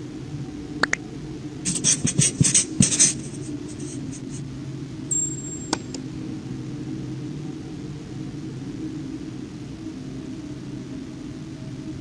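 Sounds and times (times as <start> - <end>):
steady low hum: 0.0 - 12.0
marker scribbling on whiteboard: 1.7 - 4.4.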